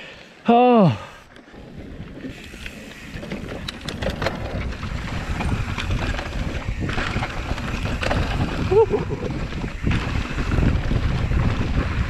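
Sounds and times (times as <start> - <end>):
bike tyres on dirt trail: 0.0 - 12.0
wind buffeting microphone: 1.5 - 12.0.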